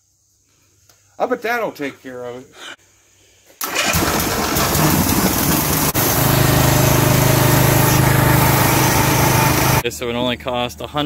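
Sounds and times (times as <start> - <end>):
small gasoline engine running: 3.7 - 9.8.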